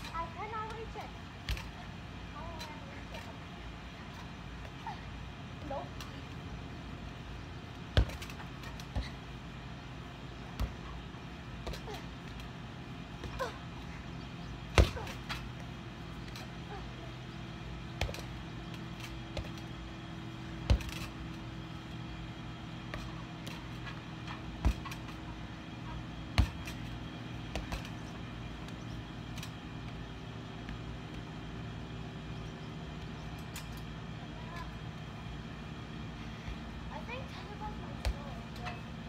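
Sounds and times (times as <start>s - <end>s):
steady low hum: 0.0s - 39.0s
tetherball thumps: 1.4s - 1.9s, 7.7s - 9.4s, 10.4s - 13.8s, 14.6s - 16.8s, 17.6s - 31.3s, 37.7s - 38.8s.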